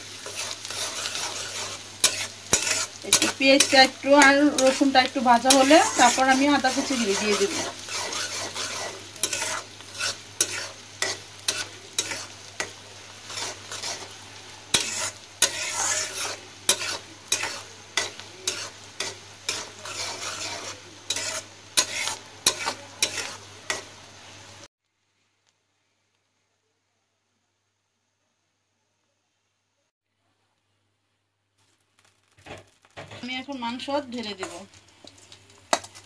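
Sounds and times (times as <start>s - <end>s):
spatula scraping and knocking pan: 0.0s - 23.9s, 32.3s - 36.0s
onions sizzling in hot oil: 0.0s - 26.6s, 31.6s - 36.0s.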